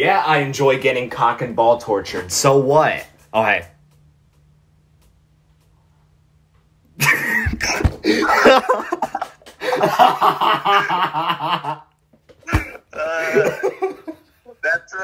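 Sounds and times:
loud hard laughter: 7.0 - 11.9, 12.5 - 14.9.

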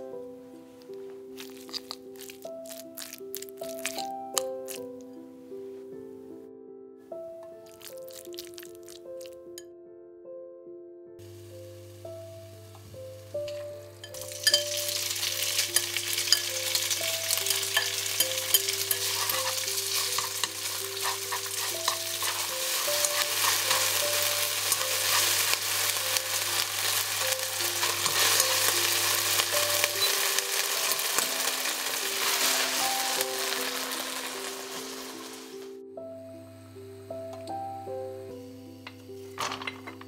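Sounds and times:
beef sizzling in hot oil: 1.4 - 4.9, 7.6 - 9.4, 13.3 - 35.7
chopsticks stirring in wok: 1.4 - 4.9, 13.5 - 35.6.

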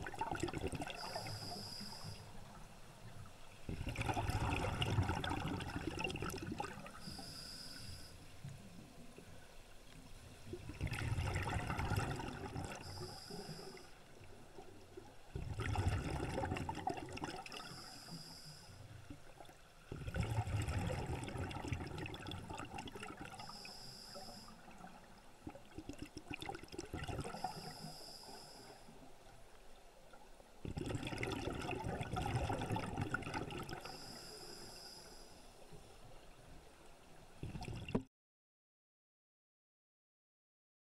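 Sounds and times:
exhaled bubbles gurgling: 0.0 - 1.6, 3.7 - 7.2, 10.4 - 17.8, 19.1 - 23.5, 24.6 - 27.8, 30.6 - 34.1, 37.4 - 38.1
regulator hiss on inhale: 0.8 - 2.4, 6.9 - 8.5, 12.8 - 14.0, 17.6 - 19.0, 23.4 - 24.7, 27.3 - 29.1, 33.8 - 35.9.

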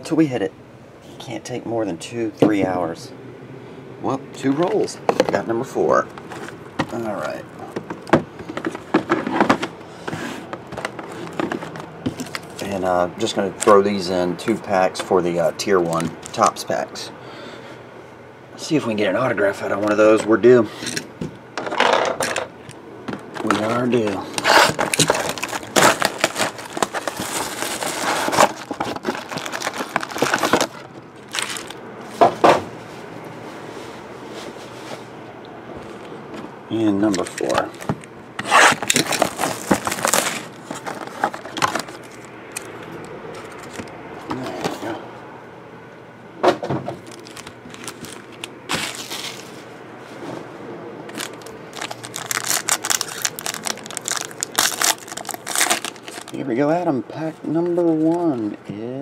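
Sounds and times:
cellophane rustles: 8.4 - 12.9, 23.3 - 35.1, 37.0 - 45.0, 47.0 - 50.3, 51.1 - 56.5
cellophane crinkling: 23.3 - 32.2, 37.0 - 44.9, 47.0 - 49.7, 51.1 - 56.6.

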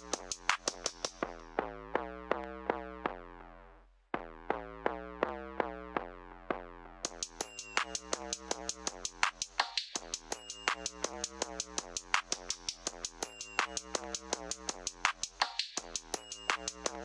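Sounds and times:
hi-hats: 0.0 - 1.3, 7.1 - 17.0
instrumental hip-hop beat: 0.0 - 1.5, 7.1 - 17.0.

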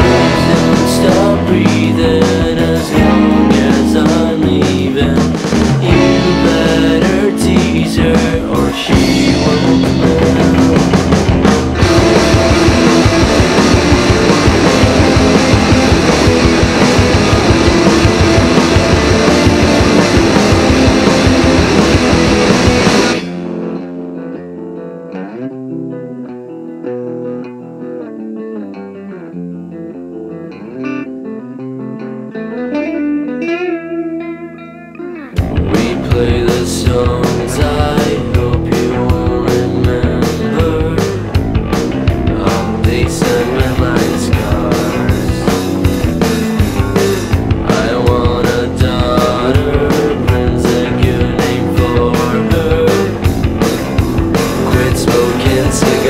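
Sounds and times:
held bass notes: 0.0 - 23.8, 35.4 - 56.0
drum kit: 0.0 - 23.9, 35.4 - 56.0
electric guitar: 0.0 - 56.0.

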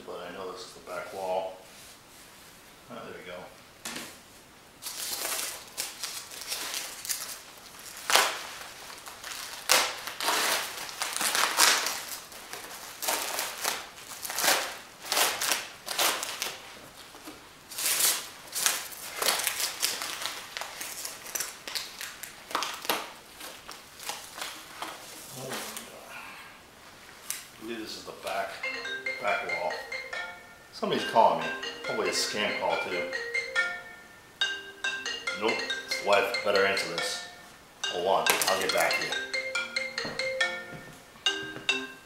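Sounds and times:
packing peanuts and plastic rustling: 4.8 - 26.0.

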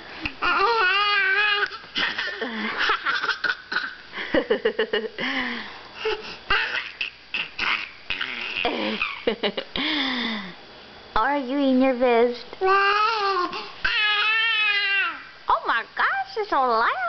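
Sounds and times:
baby laughing: 0.4 - 4.0, 6.1 - 9.4.

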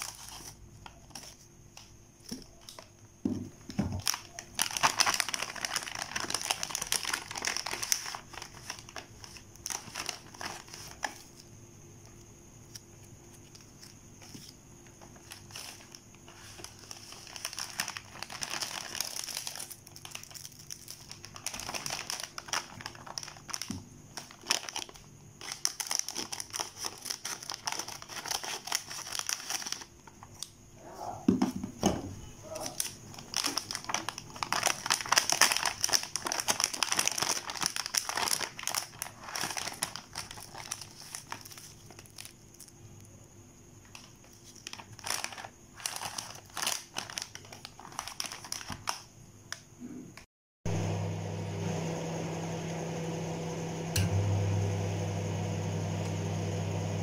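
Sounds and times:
plastic packets crinkling: 0.0 - 3.0, 3.6 - 11.5, 12.6 - 30.5, 32.5 - 42.8, 43.8 - 49.1
microwave oven humming: 50.7 - 57.0.

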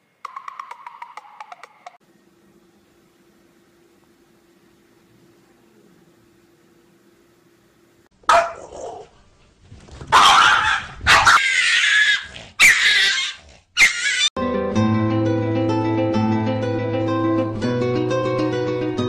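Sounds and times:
faint steady hum: 2.0 - 8.1
small dog barking: 8.2 - 9.1, 10.1 - 14.3.

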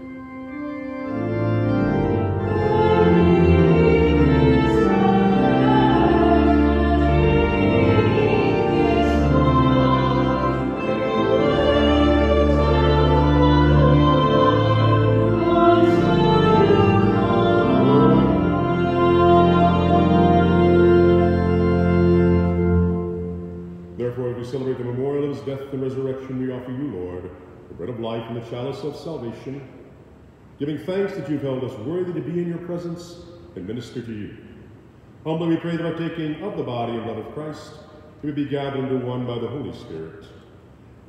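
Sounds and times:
organ chords: 0.0 - 41.0
people singing: 2.4 - 21.6.

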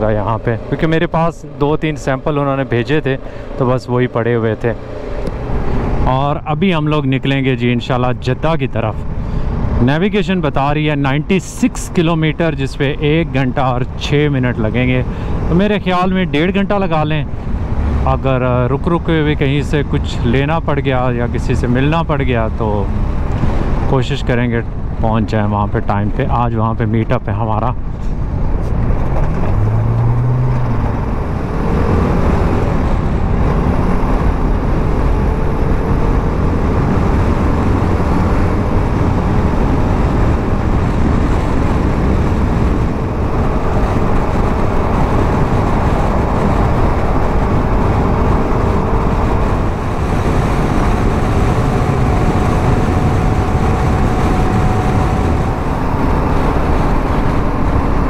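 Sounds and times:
motorcycle running: 0.0 - 6.4, 28.6 - 58.0
wind rushing over microphone: 0.0 - 58.0.

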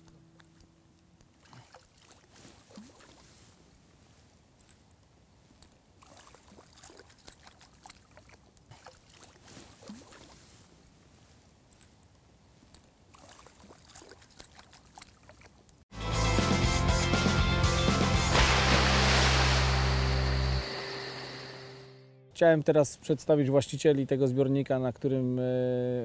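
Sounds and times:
faint small splashes: 0.4 - 11.0, 11.6 - 15.8, 18.3 - 21.7
loud title music: 15.9 - 22.2.

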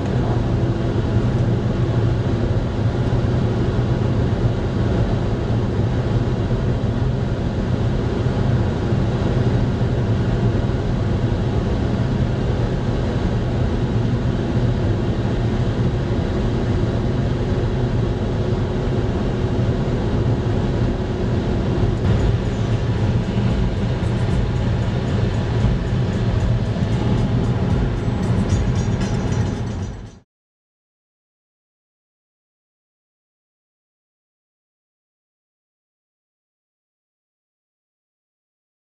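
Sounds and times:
car cabin drone at speed: 0.0 - 30.2.

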